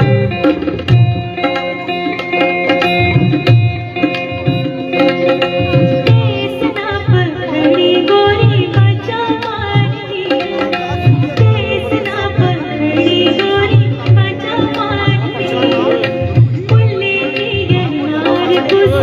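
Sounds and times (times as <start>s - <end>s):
hand drum beat: 0.0s - 19.0s
plucked strings: 0.0s - 19.0s
woman singing: 5.7s - 19.0s.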